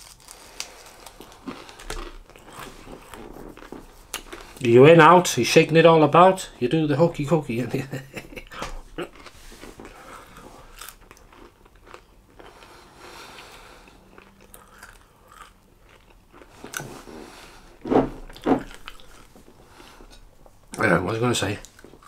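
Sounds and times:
man chewing crunchy food: 0.0s - 4.6s, 8.5s - 20.8s, 21.6s - 22.0s.

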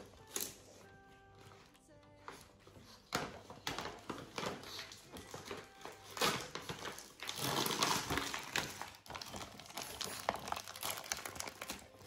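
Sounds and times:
plastic packaging crinkling: 3.4s - 12.0s.

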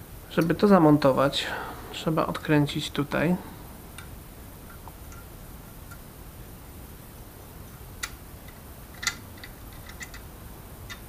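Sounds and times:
low room hum: 0.0s - 11.0s
allen key clicking on screw: 8.0s - 10.3s.

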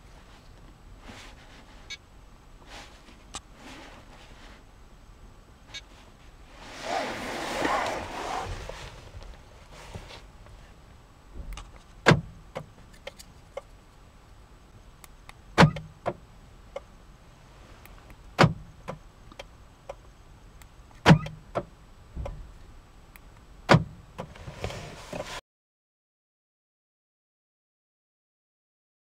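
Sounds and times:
car door locks clunking: 11.4s - 12.8s, 15.6s - 16.2s, 18.4s - 19.0s, 21.0s - 22.4s, 23.7s - 24.3s.

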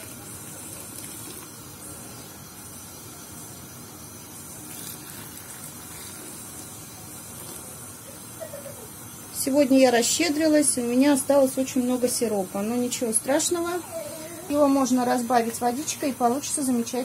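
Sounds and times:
syrup pouring into glass jars: 0.0s - 2.0s, 4.4s - 7.8s.

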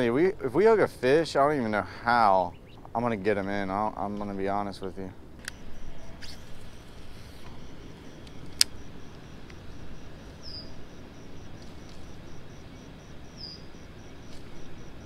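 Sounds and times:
low wind: 0.0s - 15.0s
insect calling with high pulsing: 1.8s - 15.0s
sharp click: 5.4s - 6.7s, 8.2s - 8.8s.

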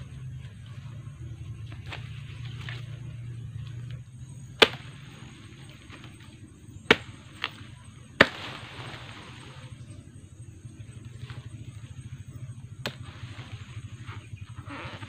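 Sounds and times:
machete chopping: 3.8s - 9.2s, 12.8s - 13.2s.

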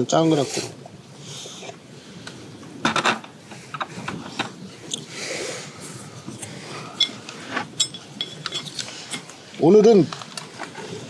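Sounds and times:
soft breathy hiss: 0.1s - 2.8s, 3.4s - 11.0s
utensils tapping metal bowls: 7.8s - 9.3s.

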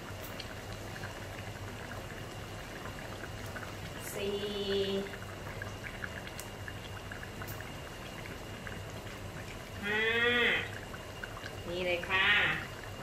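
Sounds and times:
liquid simmering in a wok: 0.0s - 13.0s.

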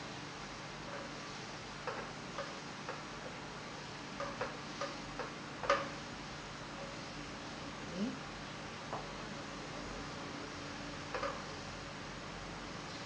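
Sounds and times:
steady low hiss: 0.0s - 13.0s
wooden spatula tapping a frying pan: 1.8s - 3.4s, 4.2s - 6.0s, 11.1s - 11.5s.

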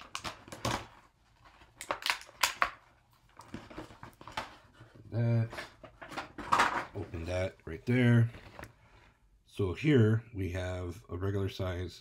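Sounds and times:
packaging being torn and crinkled: 0.0s - 4.4s.

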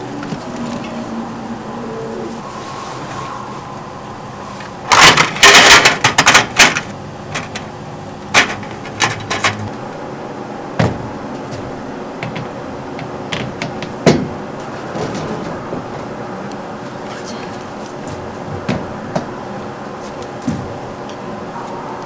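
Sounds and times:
knocks and clacks of folding stand: 4.9s - 7.7s, 8.3s - 9.7s, 12.2s - 16.1s, 18.1s - 19.3s.

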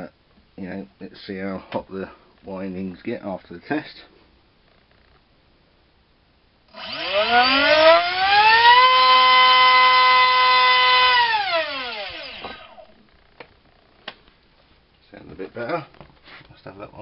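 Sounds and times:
electric motor whine: 6.7s - 12.9s.

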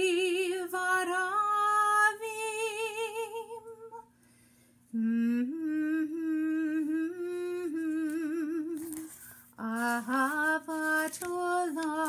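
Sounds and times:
woman humming: 5.0s - 9.8s.

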